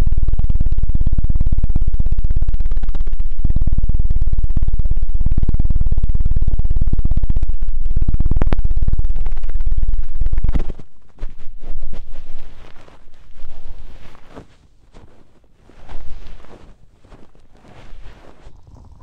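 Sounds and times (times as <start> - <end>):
rubbing and tapping on microphone: 8.3 - 19.0.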